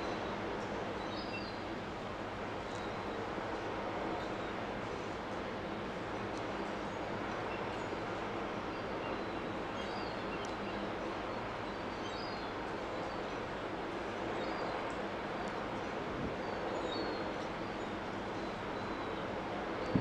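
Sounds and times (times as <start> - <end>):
container port hum and rumble: 19.8 - 20.0.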